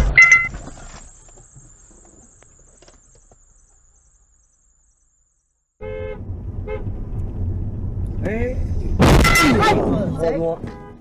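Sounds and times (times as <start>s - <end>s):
loud sudden bang: 8.9s - 10.4s.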